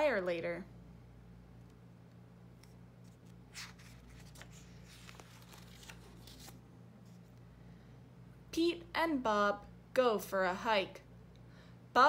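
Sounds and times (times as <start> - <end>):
steady low hum: 0.0 - 12.0
book pages turning: 2.5 - 7.4.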